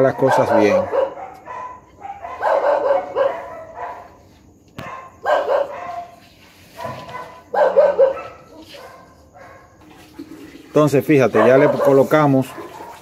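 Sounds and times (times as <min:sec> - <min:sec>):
dogs barking: 0:00.0 - 0:09.9, 0:11.2 - 0:13.0.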